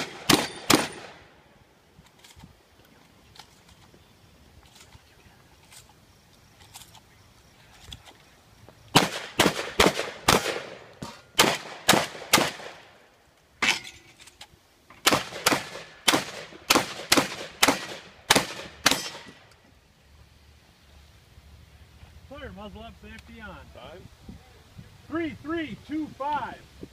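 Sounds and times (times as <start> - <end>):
shotgun shots echoing: 0.0 - 1.3, 9.0 - 13.0, 15.0 - 19.4.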